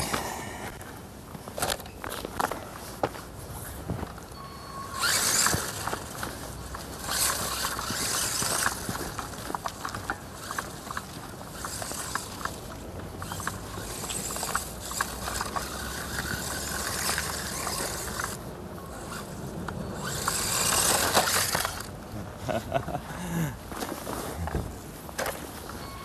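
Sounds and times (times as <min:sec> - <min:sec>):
rc truck driving over lawn: 0:00.0 - 0:00.8, 0:01.5 - 0:02.5, 0:03.9 - 0:22.1
footsteps on dry grass and leaves: 0:05.0 - 0:18.4.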